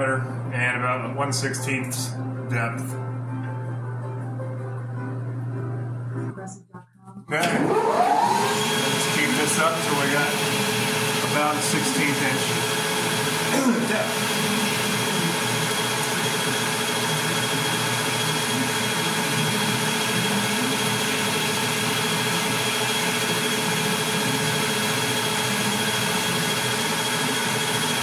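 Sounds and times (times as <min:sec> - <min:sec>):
metal lathe humming with whine: 0:07.4 - 0:28.0.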